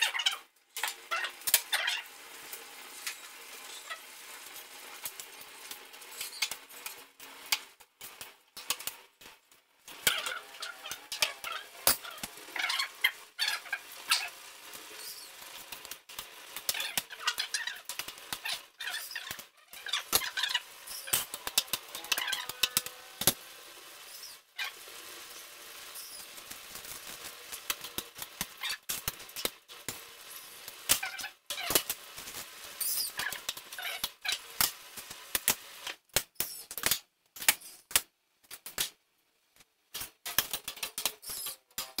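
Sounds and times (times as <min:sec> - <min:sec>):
food sizzling: 0:00.0 - 0:38.0, 0:39.9 - 0:42.0
spatula scraping a pan: 0:09.9 - 0:35.5.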